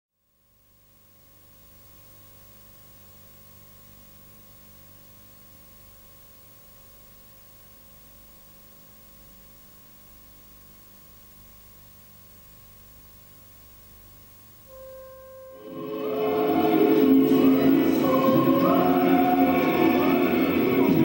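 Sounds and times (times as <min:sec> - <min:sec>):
faint steady hiss: 0:00.2 - 0:21.0
low hum: 0:14.0 - 0:21.0
thin steady tones: 0:14.7 - 0:21.0.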